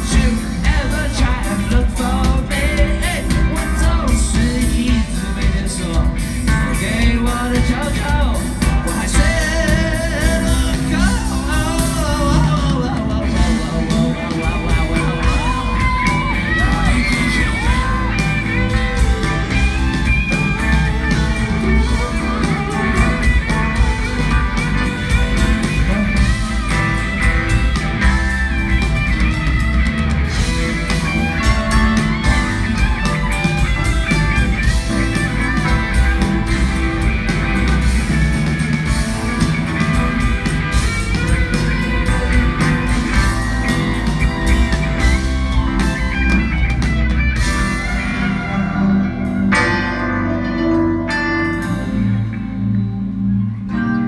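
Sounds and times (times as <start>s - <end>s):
electric guitar lead with bending notes: 0.0s - 54.0s
live rock band: 0.0s - 54.0s.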